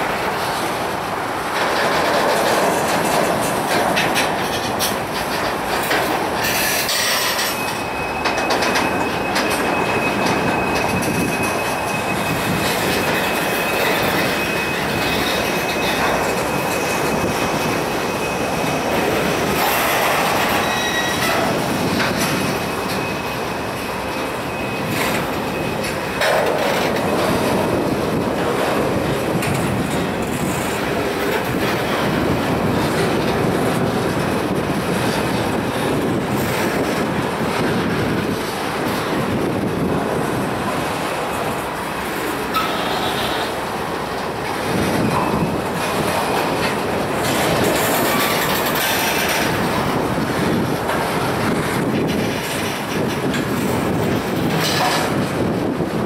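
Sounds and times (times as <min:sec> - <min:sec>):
train wheels clattering on track: 0:00.0 - 0:56.0
high-pitched wheel squeal: 0:06.4 - 0:27.8.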